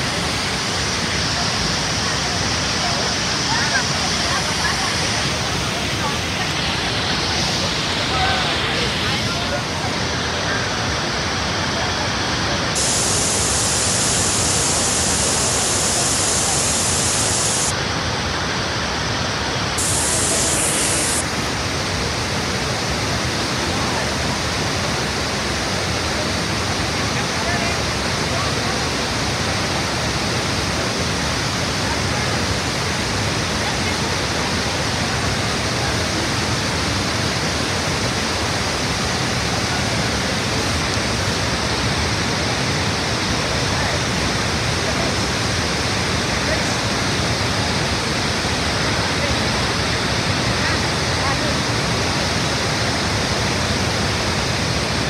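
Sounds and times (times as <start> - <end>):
waterfall rushing: 0.0 - 36.2.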